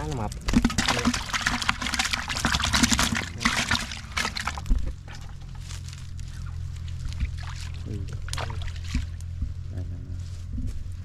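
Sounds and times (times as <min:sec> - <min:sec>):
fish splashing in bucket of water: 0:00.0 - 0:05.4, 0:06.8 - 0:09.2
steady low hum: 0:00.0 - 0:11.0.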